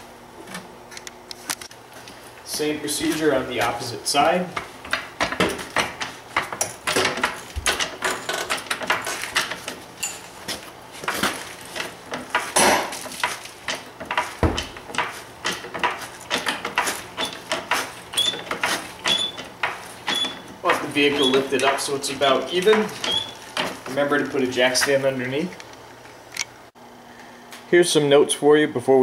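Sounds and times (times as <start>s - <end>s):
metallic clicking of car jack: 4.9s - 24.1s.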